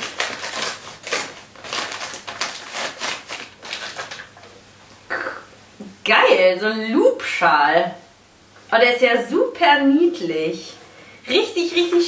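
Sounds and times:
gift wrapping paper rustling: 0.0 - 4.5.

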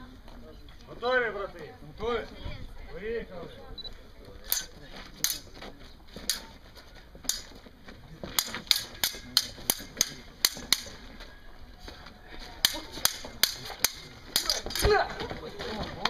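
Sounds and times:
steel sabres clashing: 4.5 - 5.5, 6.2 - 6.5, 7.2 - 7.6, 8.2 - 11.1, 12.5 - 15.3.

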